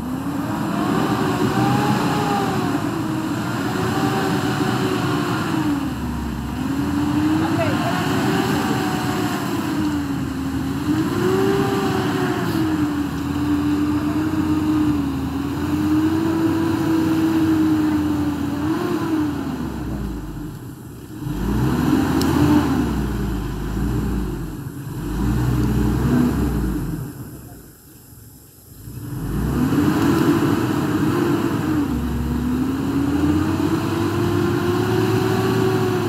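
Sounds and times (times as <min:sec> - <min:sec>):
truck engine revving under load: 0:00.0 - 0:27.4, 0:28.7 - 0:36.0.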